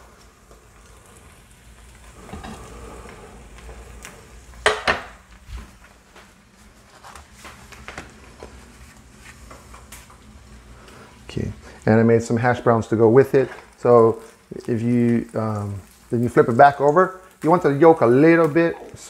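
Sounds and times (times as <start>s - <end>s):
egg sizzling in skillet: 0.0s - 19.0s.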